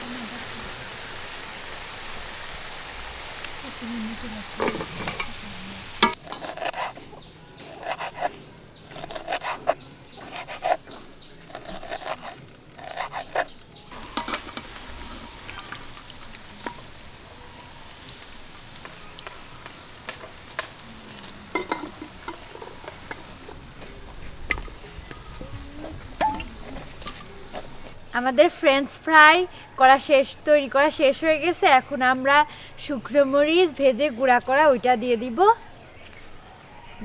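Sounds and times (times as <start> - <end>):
fries sizzling in hot oil: 0.0 - 6.9, 13.9 - 23.6
metal spoon scraping a pan: 6.0 - 8.4, 9.0 - 15.3.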